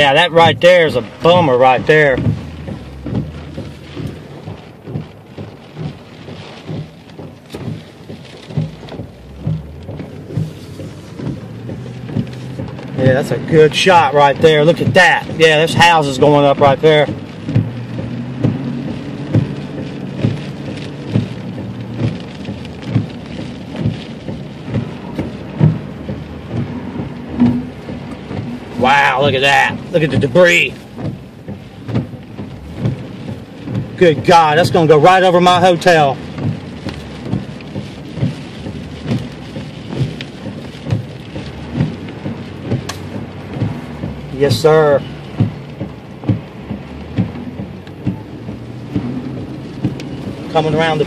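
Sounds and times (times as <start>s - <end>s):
heavy rain on a car: 0.0s - 51.0s
low thump: 2.0s - 13.2s, 24.7s - 28.6s
soft thump: 6.7s - 12.8s.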